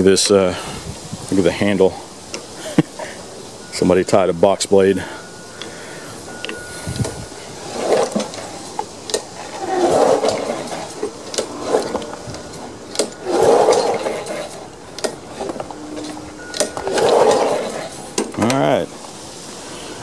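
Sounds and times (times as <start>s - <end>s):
recoil starter pull whirring: 6.4s - 18.6s.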